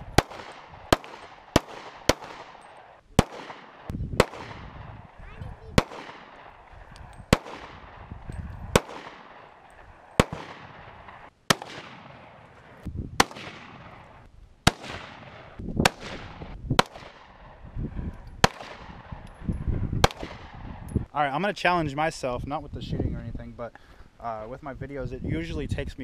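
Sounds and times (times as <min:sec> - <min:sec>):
gunshots with echo: 0:00.0 - 0:17.6, 0:18.4 - 0:19.2, 0:20.0 - 0:20.8.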